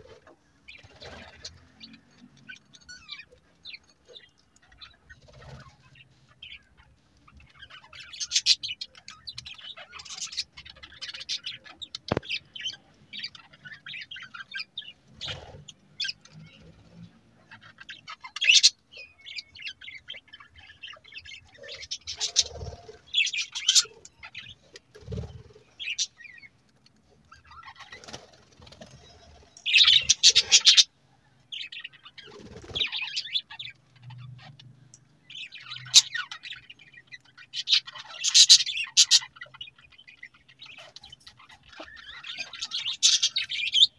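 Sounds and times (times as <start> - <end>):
budgerigars chirping: 0.0 - 16.7, 17.4 - 26.5, 27.3 - 30.9, 31.5 - 34.6, 35.2 - 43.9.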